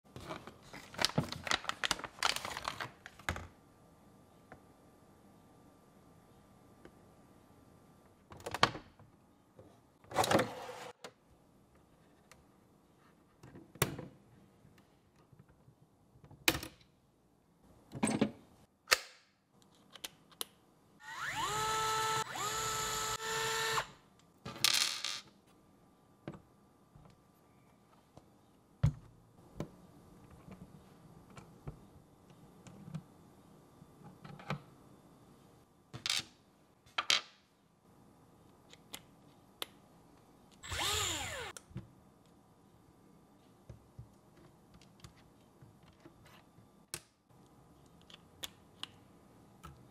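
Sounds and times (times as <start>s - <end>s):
cordless drill whirring: 21.0s - 23.9s, 40.6s - 41.6s.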